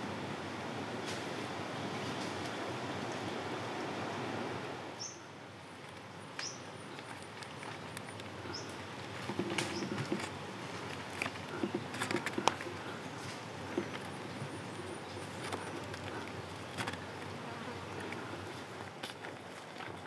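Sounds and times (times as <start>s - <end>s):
vine rustling and clicking: 5.7s - 20.0s
insect buzzing: 8.4s - 19.1s.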